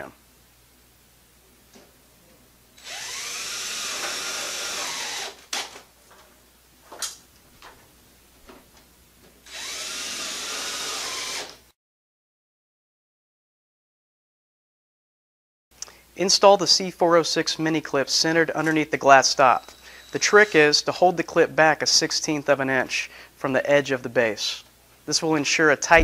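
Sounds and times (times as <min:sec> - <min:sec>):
cordless drill driving screws: 0:02.8 - 0:05.8, 0:09.5 - 0:11.6.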